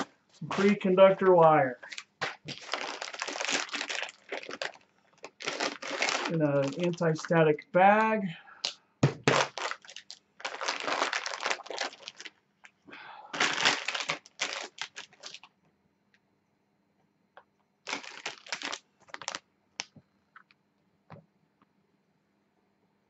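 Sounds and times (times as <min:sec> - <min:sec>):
plastic bag crinkling: 0:00.0 - 0:07.4, 0:08.6 - 0:12.4, 0:13.4 - 0:15.5, 0:17.8 - 0:19.4.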